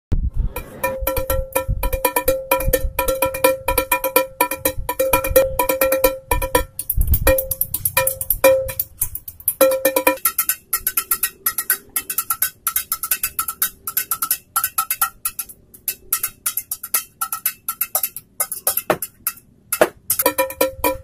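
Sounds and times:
sticks tapping household objects: 0:00.6 - 0:21.0.

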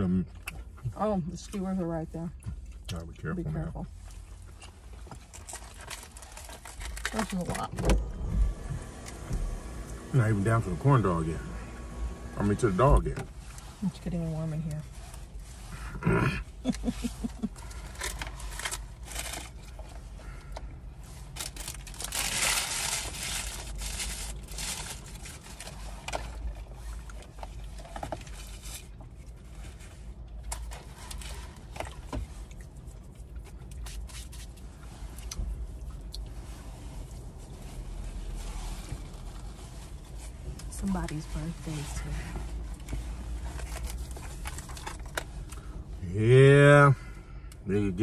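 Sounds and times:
paper wrappers crinkling: 0:05.3 - 0:07.7, 0:21.3 - 0:27.0
car cabin hum: 0:06.8 - 0:15.2.

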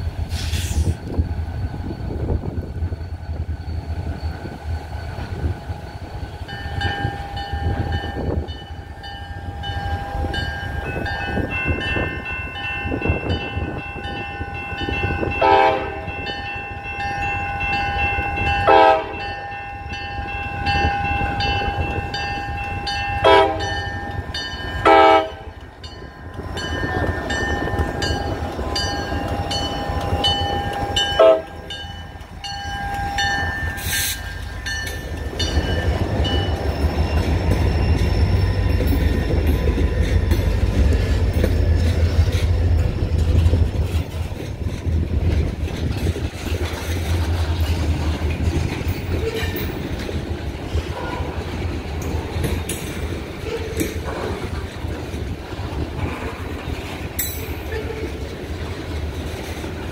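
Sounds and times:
boxcars rumbling: 0:00.0 - 0:59.9
wheels clattering on rail joints: 0:00.0 - 0:59.9
crossing bell ringing: 0:01.6 - 0:55.9, 0:56.5 - 0:59.9
locomotive horn blasts: 0:15.4 - 0:16.2, 0:18.6 - 0:19.2, 0:23.2 - 0:23.8, 0:24.8 - 0:25.6, 0:31.0 - 0:31.6.

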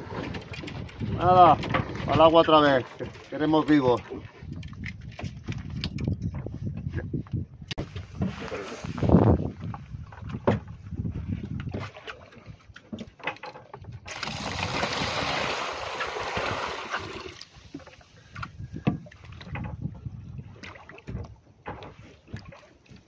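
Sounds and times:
water running into a bucket: 0:14.1 - 0:17.7.

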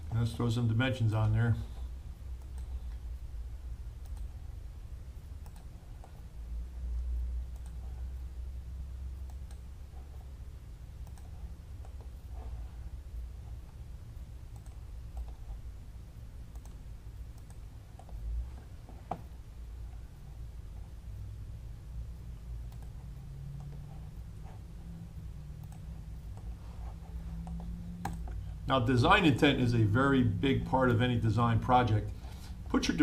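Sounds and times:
steady low hum: 0:00.0 - 0:33.0
computer mouse clicking: 0:02.3 - 0:03.1, 0:04.0 - 0:04.4, 0:05.4 - 0:06.3, 0:07.5 - 0:08.0, 0:09.2 - 0:10.3, 0:11.0 - 0:12.5, 0:14.5 - 0:15.6, 0:16.5 - 0:19.4, 0:22.7 - 0:24.6, 0:25.6 - 0:28.4.

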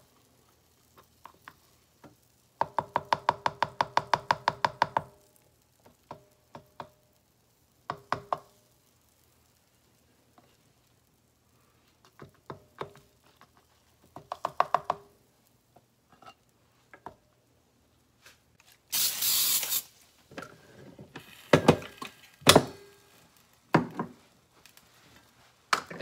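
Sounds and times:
short hiss: 0:18.2 - 0:20.2.

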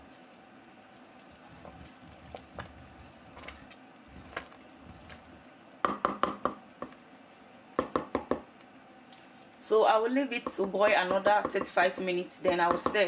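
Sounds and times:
spoon stirring thick pudding: 0:01.1 - 0:07.0
wooden spoon knocking on pot: 0:05.8 - 0:07.0, 0:07.8 - 0:08.5, 0:10.4 - 0:13.0.

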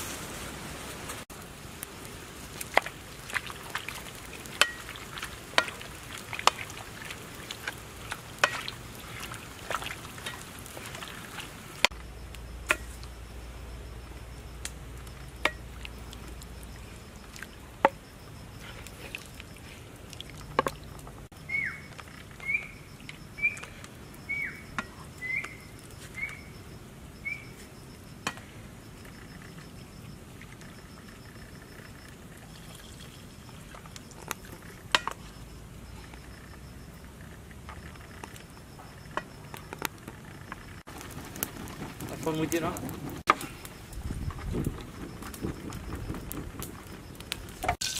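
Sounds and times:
insects trilling: 0:01.4 - 0:47.9
high falling chirps: 0:20.8 - 0:29.0.

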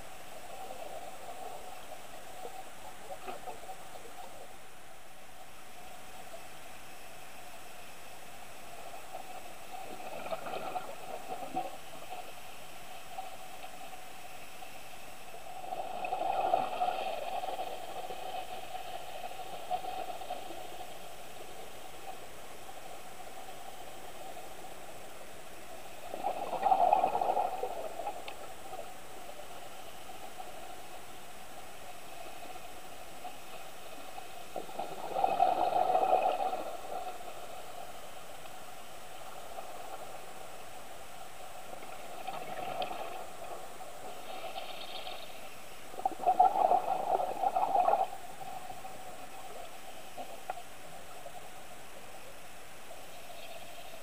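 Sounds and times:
steady underwater hiss: 0:00.0 - 0:54.0
diver's bubbles gurgling: 0:46.0 - 0:48.1.

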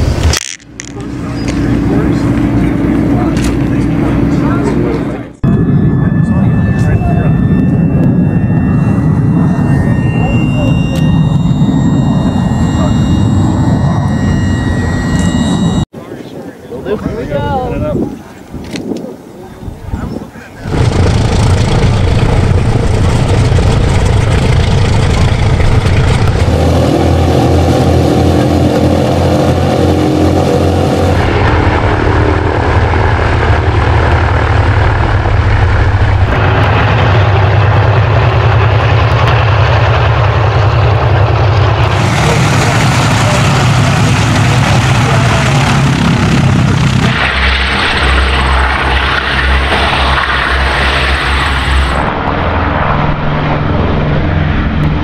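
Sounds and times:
radial piston engines running: 0:00.0 - 0:15.9.

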